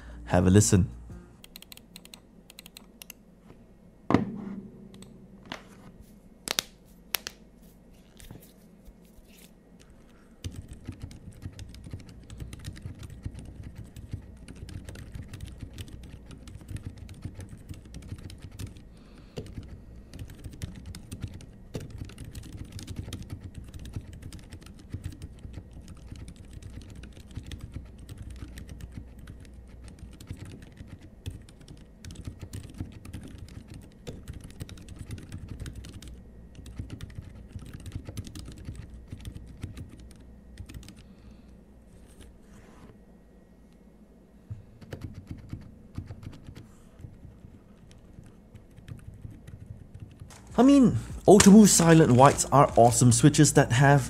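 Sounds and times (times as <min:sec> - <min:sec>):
quiet mechanical keyboard typing: 0:01.4 - 0:03.2, 0:09.2 - 0:41.1, 0:44.7 - 0:53.5.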